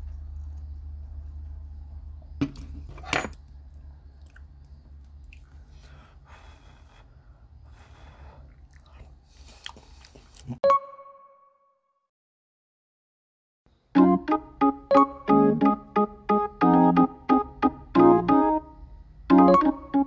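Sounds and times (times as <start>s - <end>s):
soft chewing: 3.7s - 6.0s, 8.4s - 10.6s.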